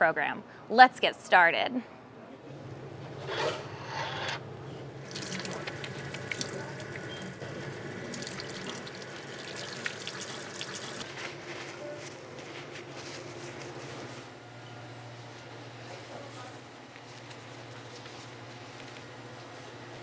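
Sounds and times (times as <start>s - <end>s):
faucet water into metal sink: 5.0s - 11.1s
water splashing over hands: 5.1s - 7.1s.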